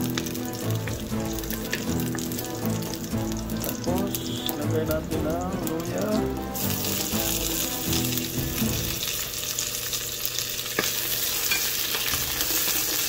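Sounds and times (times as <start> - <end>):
garlic sizzling in hot oil: 0.0 - 13.0.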